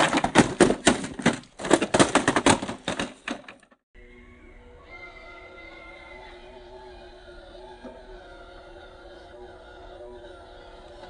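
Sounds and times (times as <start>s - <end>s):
plastic toy car clattering on rock: 0.0s - 3.8s.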